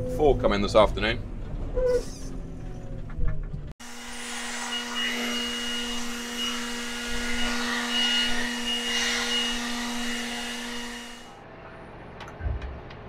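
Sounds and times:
leaf blower motor hum: 3.8s - 11.3s.

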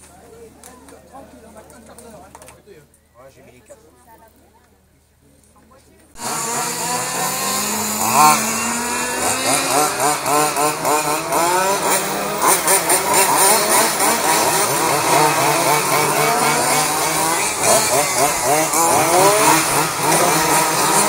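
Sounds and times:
rc car engines revving: 6.2s - 21.0s.

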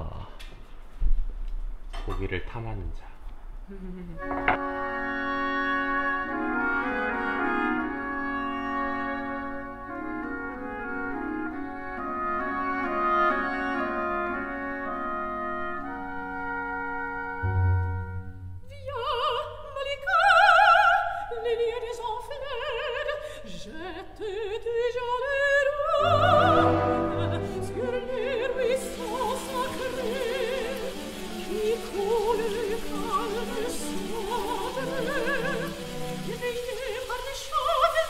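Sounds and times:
orchestral wind and brass chords: 4.2s - 18.6s, 26.0s - 37.1s
steak sizzling in hot oil: 28.8s - 38.0s.

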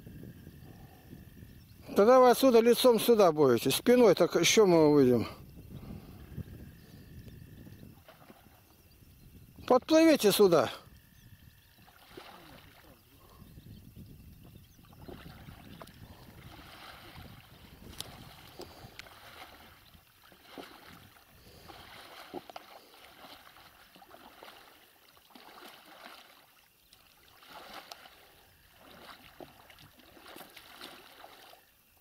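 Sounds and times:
oars pulling through water: 0.5s - 32.0s
oars knocking: 14.9s - 26.4s.

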